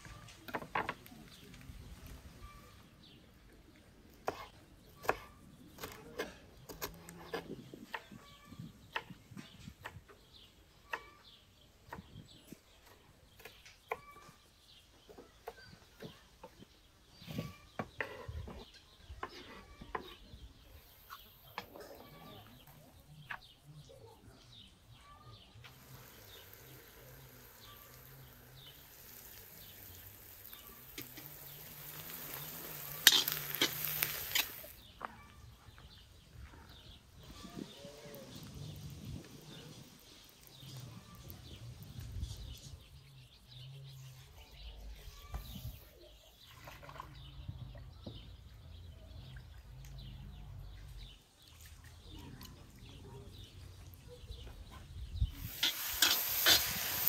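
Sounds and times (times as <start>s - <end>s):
bird chirps: 10.8s - 16.6s
steady hiss with crackles: 25.6s - 34.9s, 55.3s - 57.0s.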